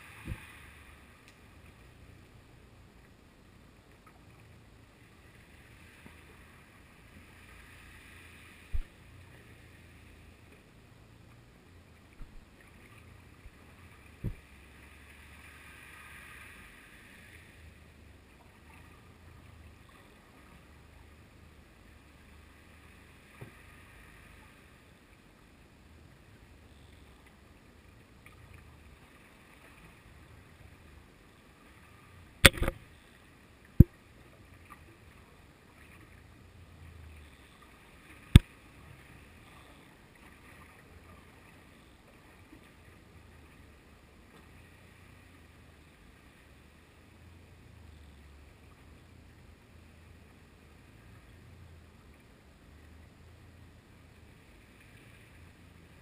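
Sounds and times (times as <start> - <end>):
faint low underwater murmur: 0.0 - 56.0
sharp knocks underwater: 0.2 - 0.4, 8.7 - 8.9, 14.2 - 14.5, 32.4 - 32.8, 33.8 - 34.0.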